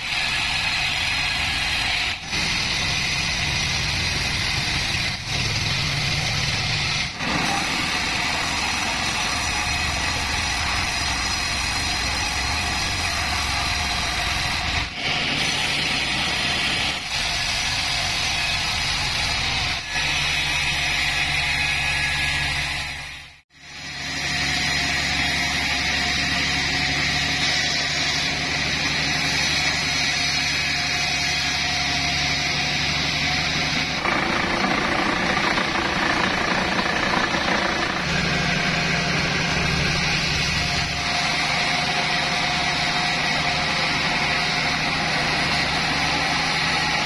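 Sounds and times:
band sawmill cutting log: 0.0s - 47.0s
machine humming: 31.4s - 47.0s.

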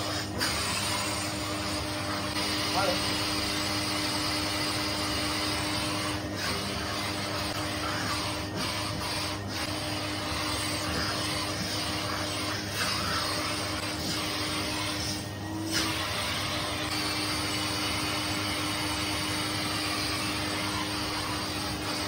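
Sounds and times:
vacuum cleaner running: 0.0s - 22.0s.

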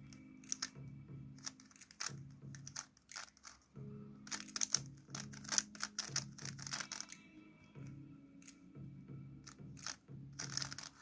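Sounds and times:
puzzle cube clacking: 0.0s - 0.8s, 1.4s - 7.2s, 9.5s - 11.0s
background music: 0.0s - 11.0s.

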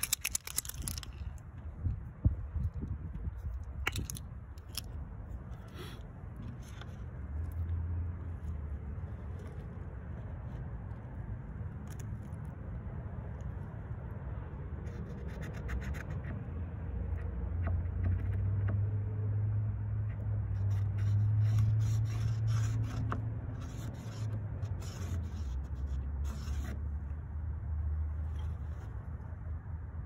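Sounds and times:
marking tool scratching plywood: 17.1s - 18.8s, 20.1s - 27.0s.

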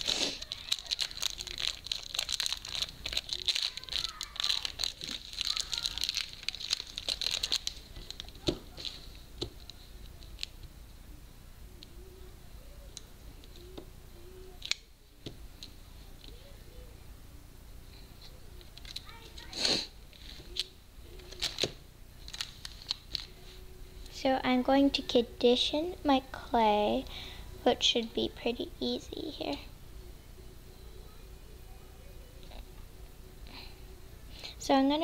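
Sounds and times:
plastic wrapper crinkling and tearing: 0.0s - 9.1s, 18.7s - 19.1s, 20.2s - 23.4s.

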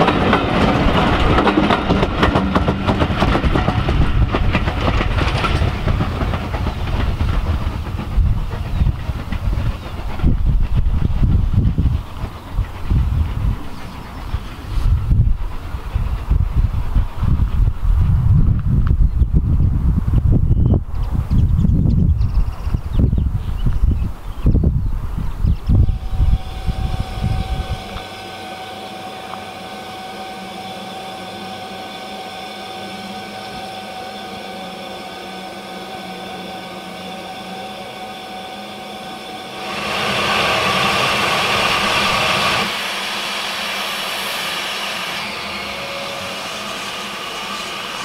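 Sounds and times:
diesel locomotive idling: 0.0s - 17.8s, 25.6s - 48.0s
steam hissing: 25.7s - 48.0s.

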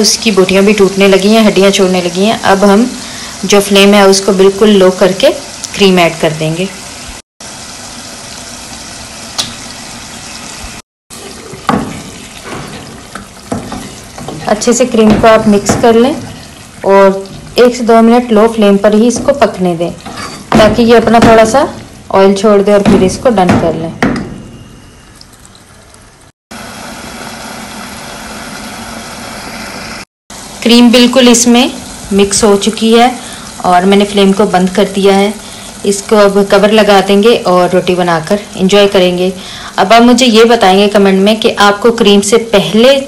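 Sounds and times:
curry sizzling in a pot: 0.0s - 23.4s, 26.6s - 43.0s
spatula knocking and scraping pot: 11.4s - 17.8s, 19.0s - 21.7s.

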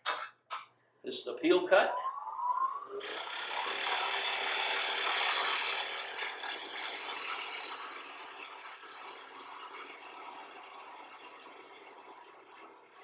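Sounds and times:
chisel cutting wood on lathe: 3.0s - 13.0s.

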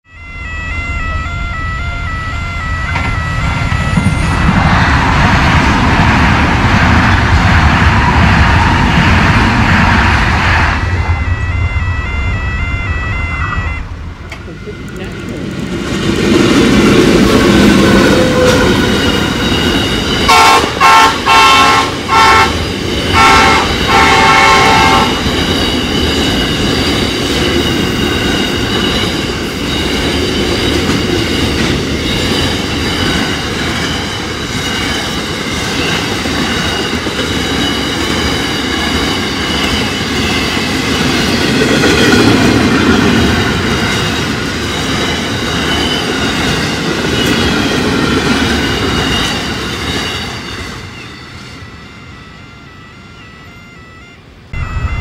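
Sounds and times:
locomotive horn blasts: 0.0s - 4.9s, 11.2s - 15.6s, 17.4s - 25.4s, 51.3s - 55.0s
freight wagons rumbling: 13.5s - 51.7s
wheels clacking on rail joints: 14.2s - 51.6s.

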